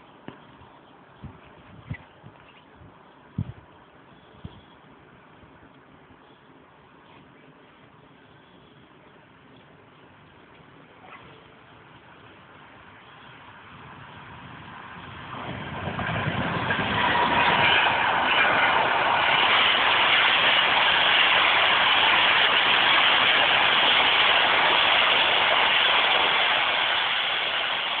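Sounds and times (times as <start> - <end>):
train wheels rushing on rails: 11.5 - 28.0.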